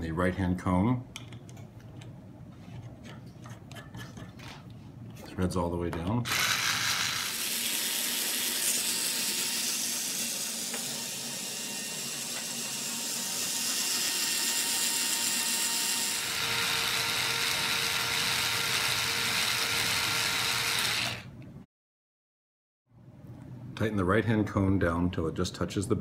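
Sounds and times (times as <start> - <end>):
mechanical whirring of spinning tool: 6.3 - 21.4.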